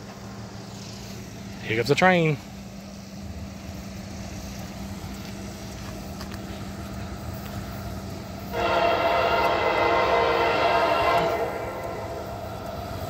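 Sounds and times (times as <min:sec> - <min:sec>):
faint steady hum: 0:00.0 - 0:13.0
locomotive air horn blast: 0:08.5 - 0:13.0.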